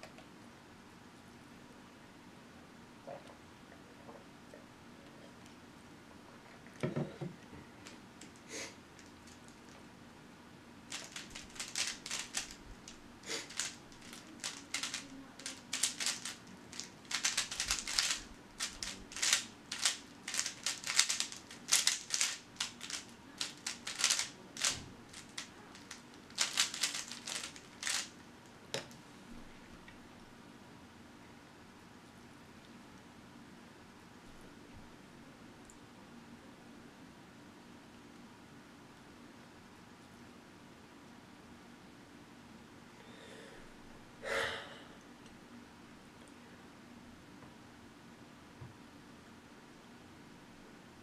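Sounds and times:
speed cube plastic clicking: 10.9s - 12.6s, 13.4s - 28.1s.

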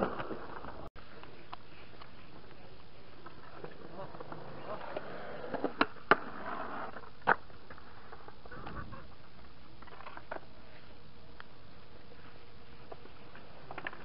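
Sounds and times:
skateboard scraping: 0.0s - 0.9s, 3.2s - 10.9s, 12.1s - 14.0s.

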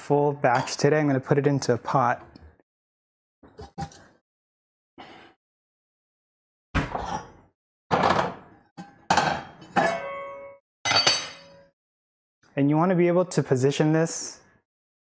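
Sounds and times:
metal pots and lids clanking: 7.9s - 11.6s.

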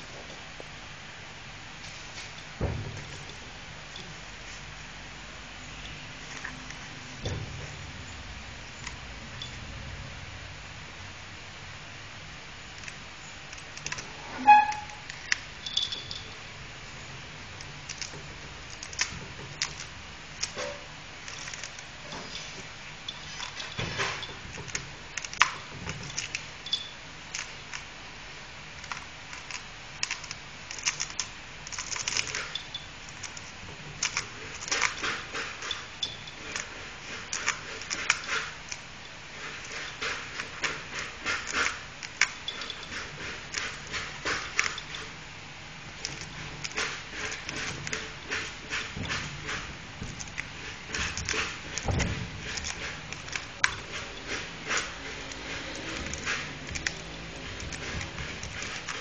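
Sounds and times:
dog chewing coconut husk: 28.7s - 59.0s.

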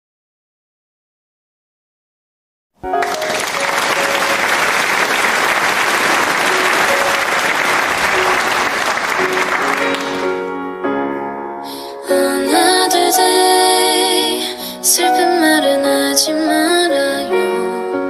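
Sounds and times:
large crowd applauding: 2.8s - 10.5s
instrumental music: 2.8s - 18.0s.

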